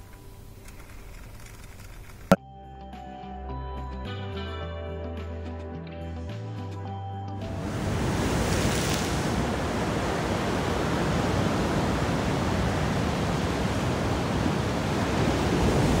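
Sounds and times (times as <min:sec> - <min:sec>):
ocean waves washing in: 0:07.4 - 0:16.0.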